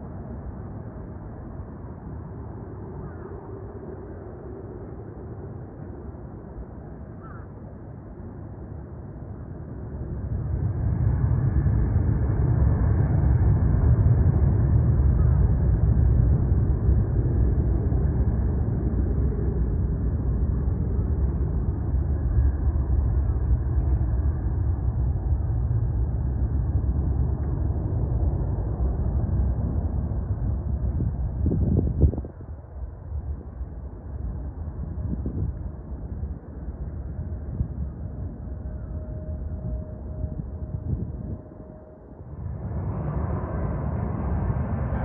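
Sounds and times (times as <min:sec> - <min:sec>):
jet airliner engines roaring: 0:00.0 - 0:45.0
wind buffeting microphone: 0:10.0 - 0:45.0.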